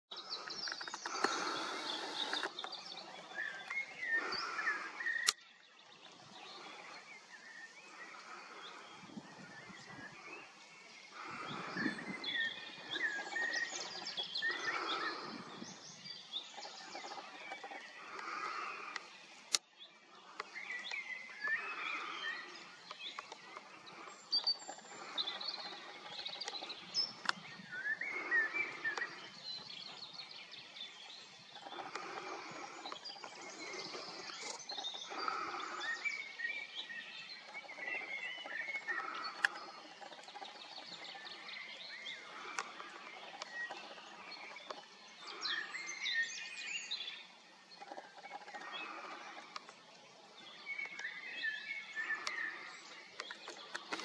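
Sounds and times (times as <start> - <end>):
birds chirping and singing: 0.1 - 54.0.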